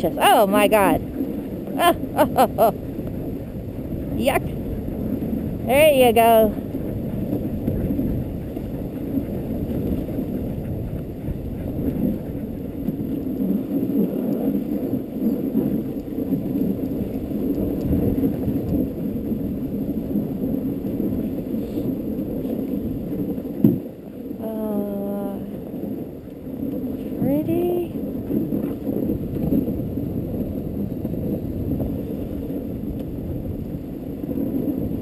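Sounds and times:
sled runners scraping on snow: 6.6 - 23.9.

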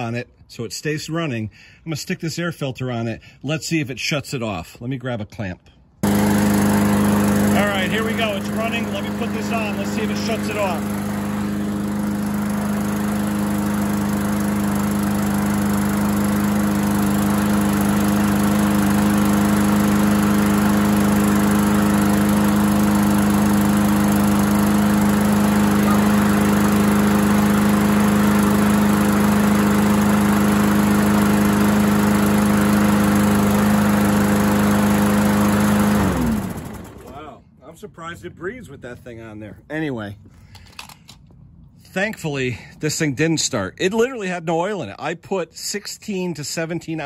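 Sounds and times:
lawn mower engine running: 6.0 - 37.3.

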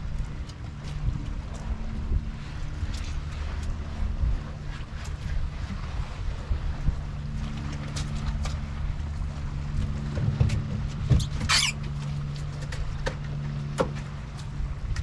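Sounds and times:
low motor hum: 0.0 - 15.0
high squeak: 11.4 - 11.8.

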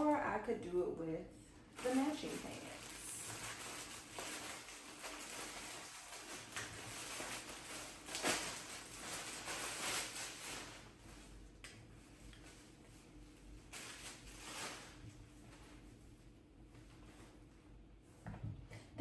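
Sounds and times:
plastic bag crinkling: 1.7 - 11.4, 13.6 - 15.1.

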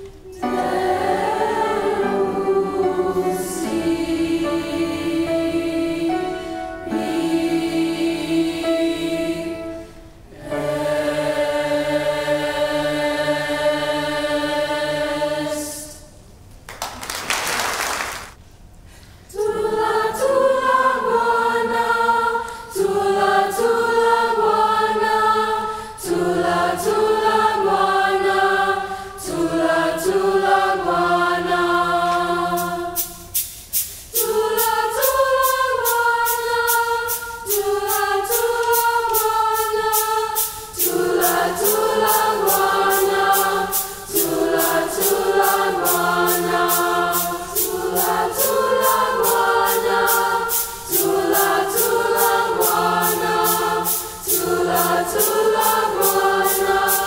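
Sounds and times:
mixed choir singing in harmony: 0.0 - 16.2, 19.3 - 57.0
percussion ticks: 32.1 - 57.0.

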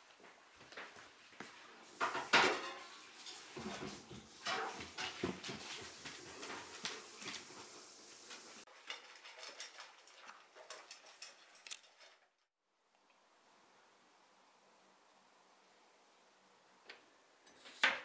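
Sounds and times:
utensils clinking against dishes: 2.0 - 5.8.

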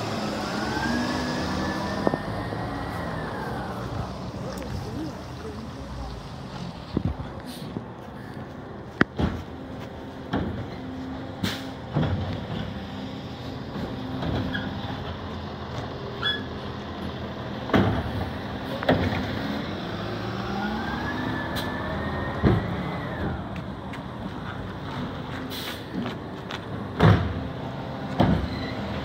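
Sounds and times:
rising whine: 0.0 - 4.7
side-loader arm clanking: 8.9 - 19.5.

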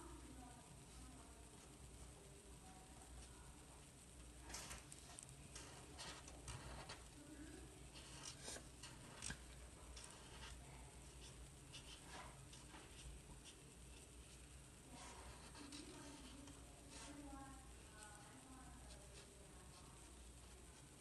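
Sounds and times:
marker scratching on paper: 10.0 - 14.4, 15.0 - 17.2.

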